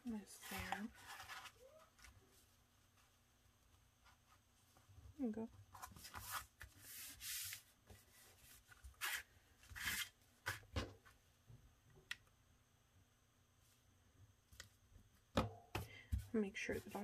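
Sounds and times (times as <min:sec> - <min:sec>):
paper envelopes rustling: 0:00.4 - 0:02.2.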